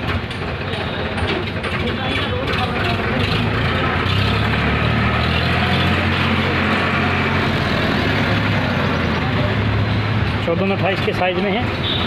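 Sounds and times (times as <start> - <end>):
outdoor traffic noise: 0.0 - 12.0
vehicle engine humming: 0.0 - 12.0.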